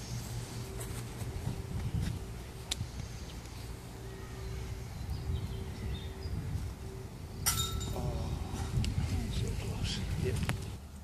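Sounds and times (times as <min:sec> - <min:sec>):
wind rumble on microphone: 0:01.2 - 0:03.1, 0:04.6 - 0:11.0
disc striking metal chain basket: 0:07.4 - 0:08.0.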